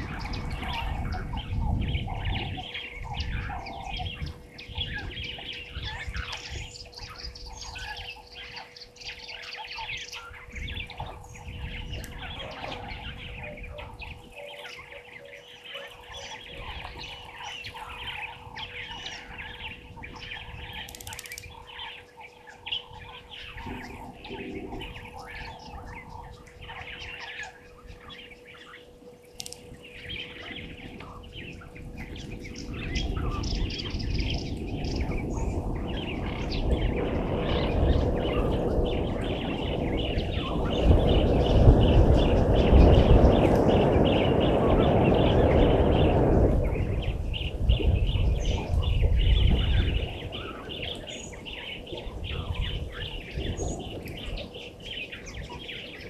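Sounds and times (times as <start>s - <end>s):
birds chirping and calling: 0.0s - 56.0s.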